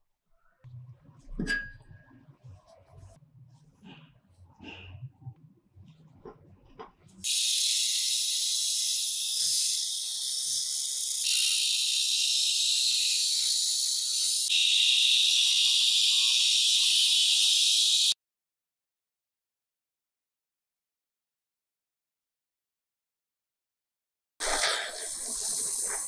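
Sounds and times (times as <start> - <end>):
angle grinder cutting steel: 7.3 - 18.2.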